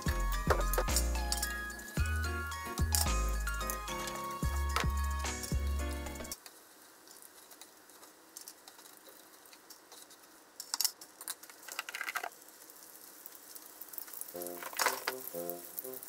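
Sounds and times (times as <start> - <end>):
faint hot oil crackle: 6.1 - 16.0.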